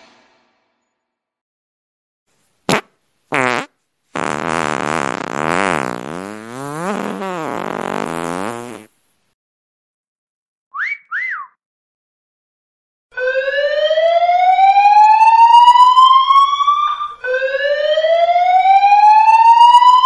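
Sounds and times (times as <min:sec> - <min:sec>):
fart sound effect: 0:02.7 - 0:09.0
wolf whistle: 0:10.7 - 0:11.6.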